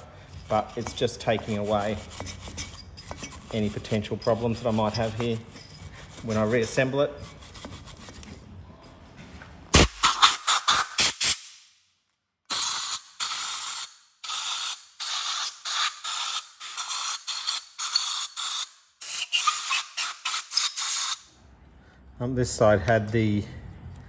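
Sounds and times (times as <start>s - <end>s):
wire brush strokes: 0.0s - 8.2s
rasping scraping strokes: 0.0s - 8.4s.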